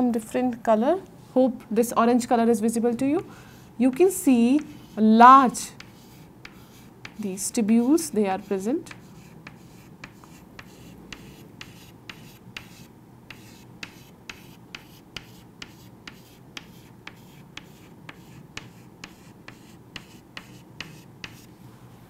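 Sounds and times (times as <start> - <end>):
chalk tapping on chalkboard: 3.9 - 5.0, 5.8 - 7.3, 8.4 - 21.5.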